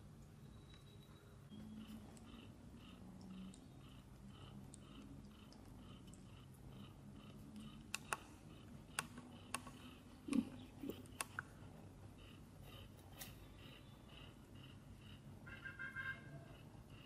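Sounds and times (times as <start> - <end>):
kittens suckling wet clicks: 1.8 - 14.3.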